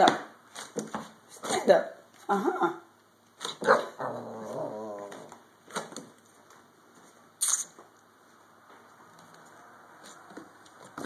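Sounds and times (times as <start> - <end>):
puppy warbling whine: 3.6 - 5.4.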